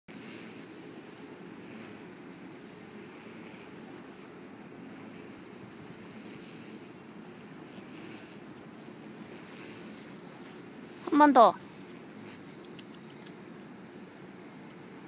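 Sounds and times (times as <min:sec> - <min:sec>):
low outdoor hum: 0:00.1 - 0:15.0
small bird chirping: 0:02.2 - 0:07.4, 0:08.2 - 0:13.6, 0:14.7 - 0:15.0.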